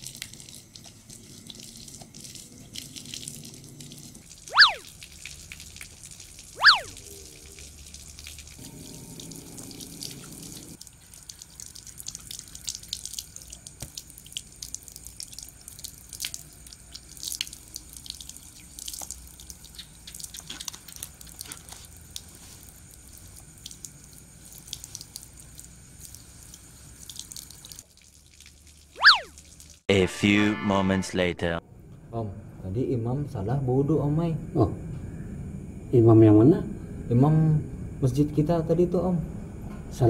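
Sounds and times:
water running from tap: 0.0 - 29.8
water splashing and dripping: 0.0 - 29.8.

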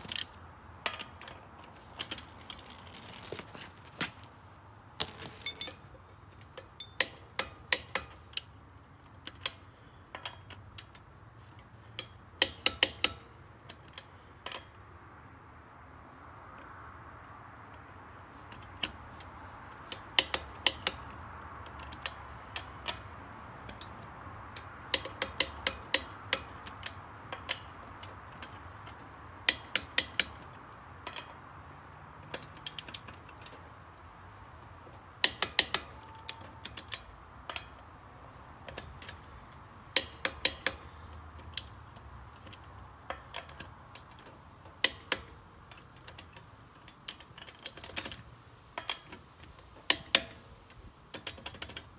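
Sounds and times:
socket ratchet clicking: 39.9 - 41.8.

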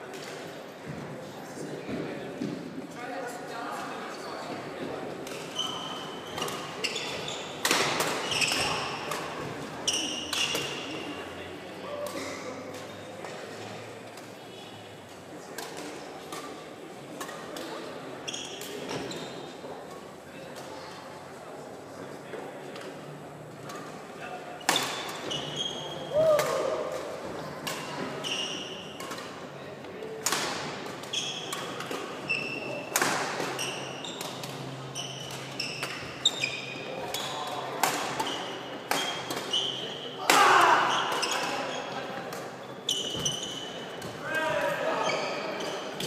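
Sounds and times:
shoe squeaks on wooden court: 5.5 - 9.2, 9.8 - 11.0, 18.2 - 19.5, 24.6 - 26.4, 28.0 - 29.0, 31.1 - 32.8, 33.5 - 40.2, 40.9 - 42.0, 42.6 - 44.0, 44.9 - 46.0
shoe squeaks on wooden floor: 5.6 - 7.6, 8.2 - 8.8, 25.2 - 26.2, 28.2 - 28.8, 34.8 - 37.4, 42.7 - 43.9, 45.0 - 45.9.

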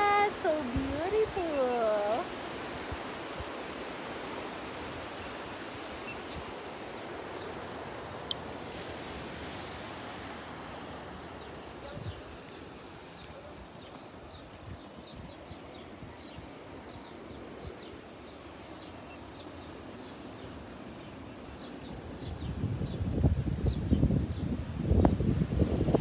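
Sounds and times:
distant surf: 0.0 - 26.0
wind hiss: 0.0 - 26.0
small birds chirping: 11.1 - 25.3.

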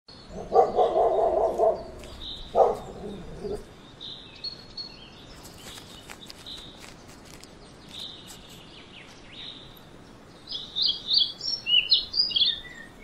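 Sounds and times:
birds chirping faintly: 0.1 - 13.0
puppy snuffling and scratching: 5.4 - 8.6.

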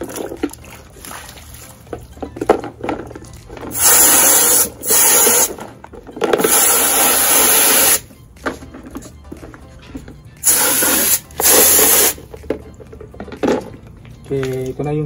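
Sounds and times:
hose nozzle spraying water: 3.7 - 5.6, 6.4 - 8.0, 10.4 - 12.2.

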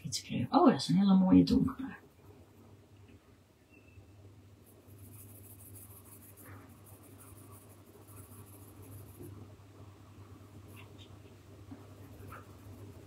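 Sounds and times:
steady low hum: 0.0 - 13.0
coloured pencil scratching paper: 4.6 - 9.4, 11.9 - 13.0.

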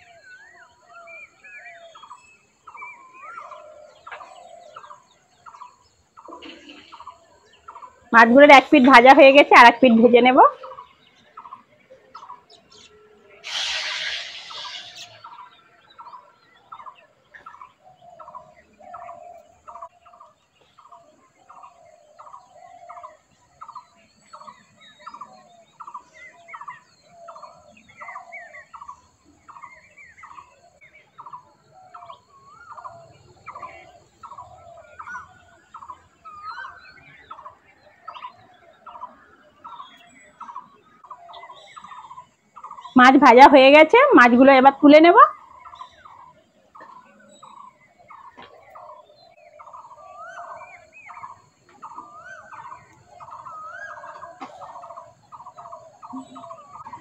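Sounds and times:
birds calling: 0.0 - 57.0
burst of noise: 13.4 - 15.2.

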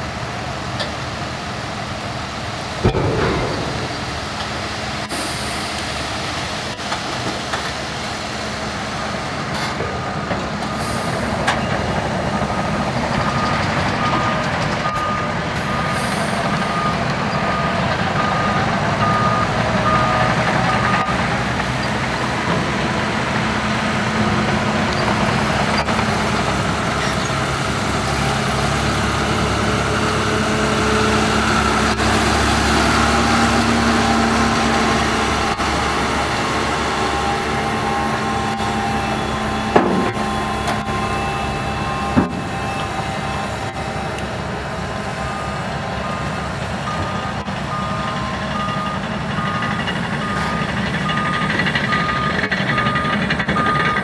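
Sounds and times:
tractor diesel engine under load: 0.0 - 54.0
reversing alarm beeping: 9.9 - 21.2, 37.0 - 44.4, 45.0 - 54.0.

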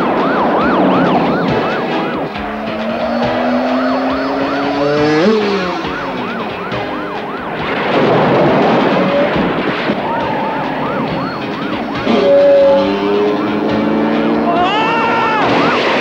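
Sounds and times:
engine revving: 0.0 - 16.0
police siren wailing: 0.0 - 16.0
rush of noise: 0.0 - 16.0.

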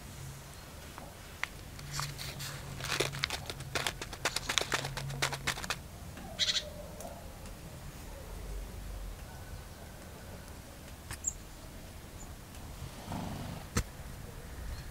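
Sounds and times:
plastic bag crinkling: 1.4 - 5.8.

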